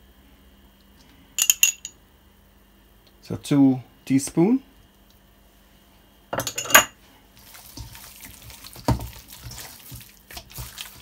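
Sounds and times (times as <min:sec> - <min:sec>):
metal spoon clinking: 0:01.4 - 0:02.0, 0:06.4 - 0:06.9
hands squishing wet meat: 0:07.3 - 0:11.0.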